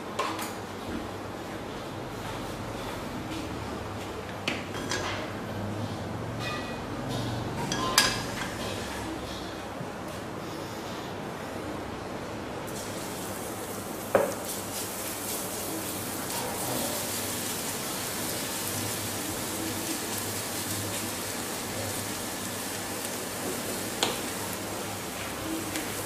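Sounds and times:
garlic sizzling in oil: 12.7 - 26.0.

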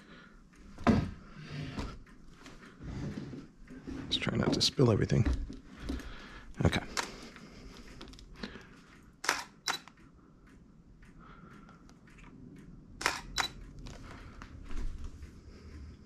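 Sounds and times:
camera shutter clicks: 9.2 - 10.0, 13.0 - 13.6.

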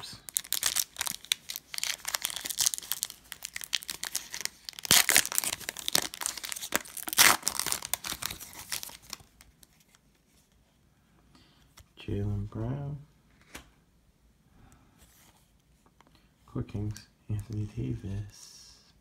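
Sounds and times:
foil wrapper crinkling and tearing: 0.3 - 9.8.

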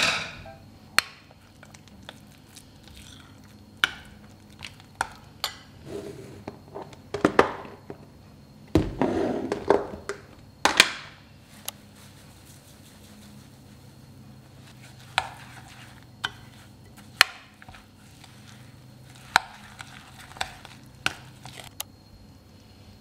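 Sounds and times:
spoon scraping squelching mixture: 11.5 - 21.8.

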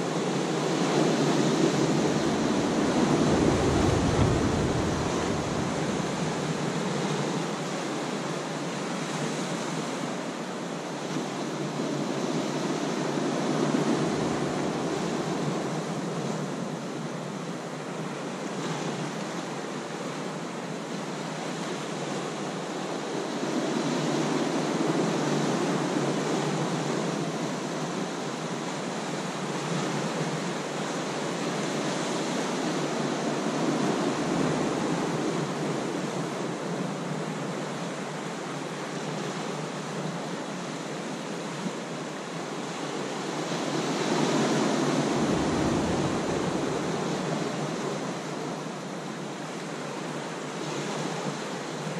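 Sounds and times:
surf washing over rocks: 0.0 - 51.9.

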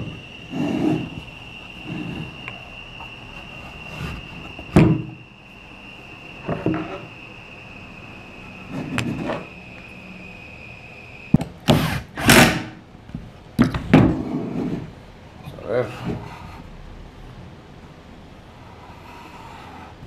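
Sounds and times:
wood scraping and sliding: 0.0 - 2.6, 3.3 - 5.2, 6.4 - 7.2, 8.6 - 9.6, 13.8 - 15.0, 15.8 - 16.6
faint high whine: 0.0 - 20.0.

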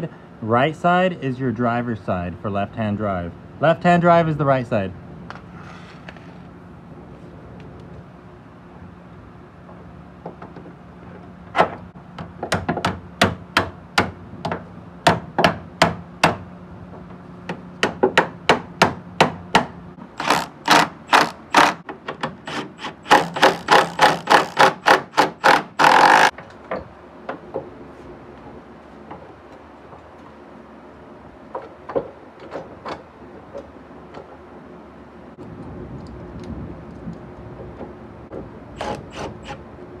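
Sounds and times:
impact wrench rattling blows: 20.2 - 26.4.

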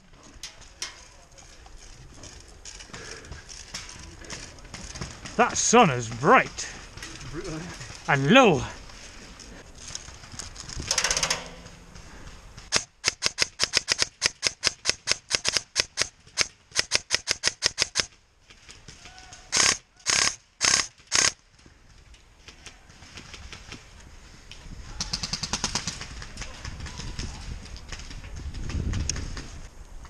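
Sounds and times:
running footsteps in dry leaves: 1.4 - 10.9.

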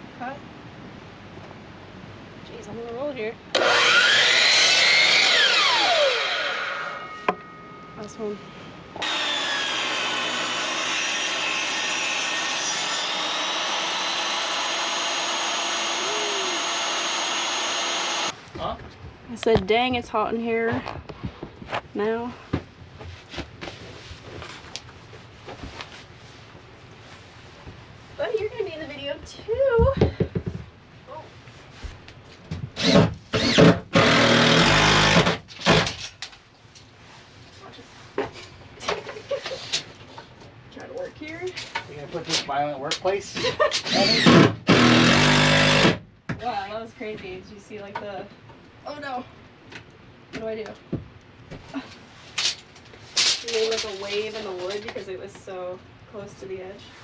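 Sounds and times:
table saw ripping a board: 3.5 - 7.2, 9.0 - 18.3, 32.8 - 36.1, 43.8 - 46.0
cordless drill running: 3.6 - 7.0, 9.0 - 18.4, 32.8 - 35.8, 43.9 - 46.0.

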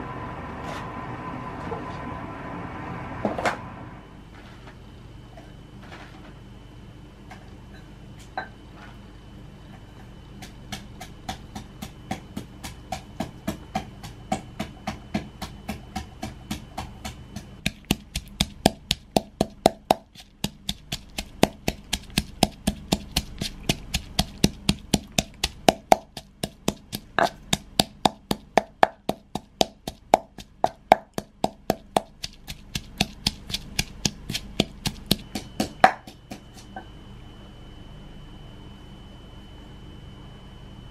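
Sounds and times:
pestle pounding in clay mortar: 10.4 - 36.8.

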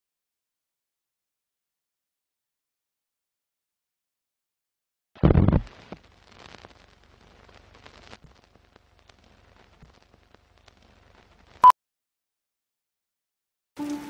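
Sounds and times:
faint film crackling and ticking: 5.2 - 11.7, 13.8 - 14.0.

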